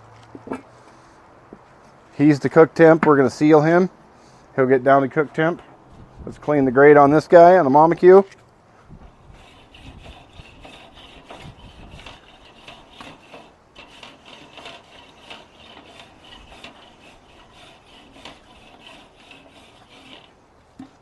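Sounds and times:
wire brush scrubbing grill grate: 9.0 - 21.0.

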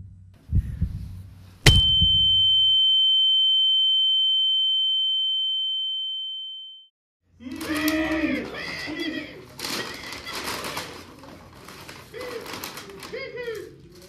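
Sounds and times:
sharp hit: 1.6 - 2.5
high-pitched ringing tone: 1.7 - 6.9.

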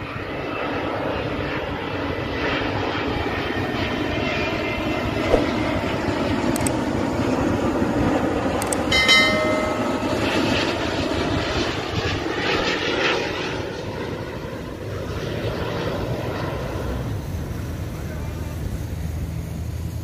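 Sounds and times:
jet engines rumbling: 0.0 - 20.0
short high chord-like tone: 8.9 - 10.8.

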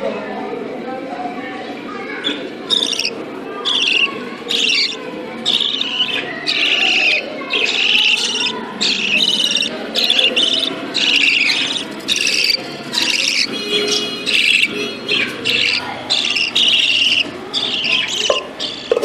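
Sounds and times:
low background noise: 0.0 - 19.0
nestlings harsh calls: 2.2 - 19.0.

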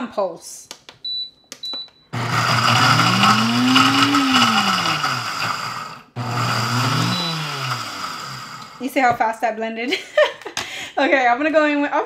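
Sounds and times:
blender grinding: 2.2 - 9.1.

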